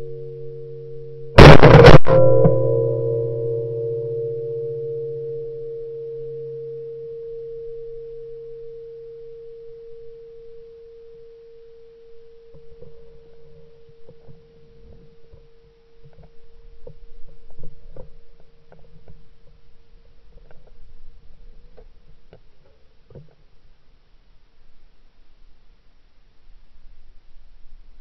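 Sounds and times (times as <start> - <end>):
bell-like ringing tone: 0.0 - 16.0
low hum: 0.0 - 28.0.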